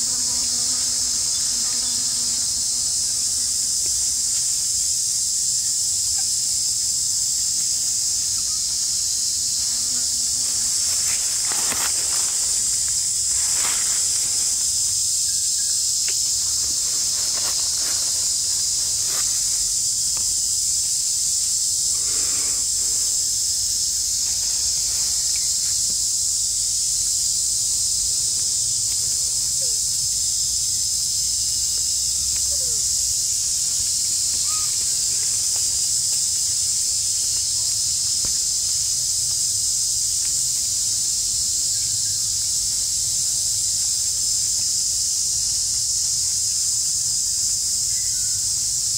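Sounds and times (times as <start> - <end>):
insect chorus droning: 0.0 - 48.9.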